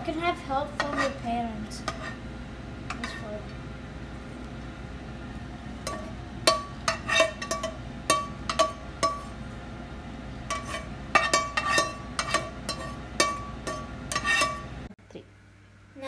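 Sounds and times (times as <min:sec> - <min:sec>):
spatula scraping frying pan: 0:00.6 - 0:02.3, 0:02.9 - 0:03.4, 0:05.8 - 0:09.4, 0:10.4 - 0:14.9.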